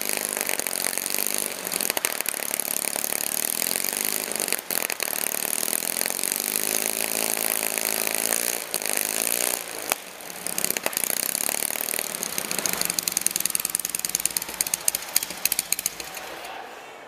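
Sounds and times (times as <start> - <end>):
engine revving and idling: 0.1 - 14.8
engine pops: 9.9 - 16.5.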